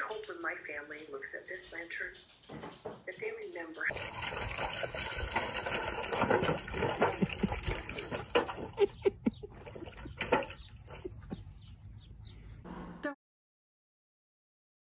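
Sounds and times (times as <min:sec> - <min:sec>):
puppy splashing in water bowl: 0:03.9 - 0:11.4.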